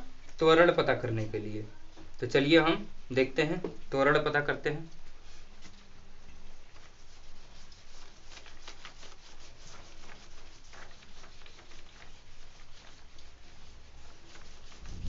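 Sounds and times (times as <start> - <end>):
wiping whiteboard scuffs: 6.7 - 15.0.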